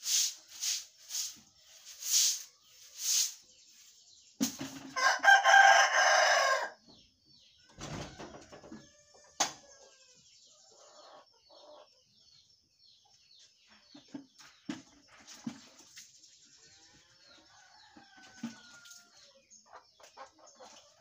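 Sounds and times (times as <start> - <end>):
small birds chirping faintly: 0.0 - 21.0
rooster crowing: 5.0 - 6.8.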